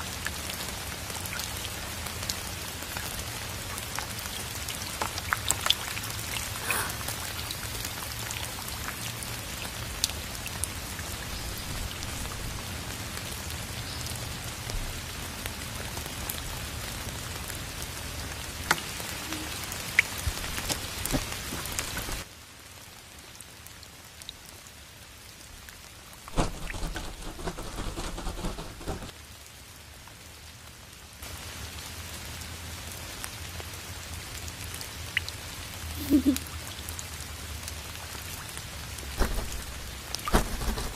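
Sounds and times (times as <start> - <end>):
steady rain: 0.0 - 40.9.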